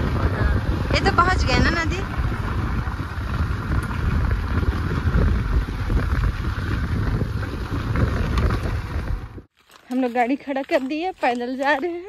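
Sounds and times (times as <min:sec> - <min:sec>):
motorbike engine rumble: 0:00.0 - 0:09.5
wind rushing over microphone: 0:00.0 - 0:09.5.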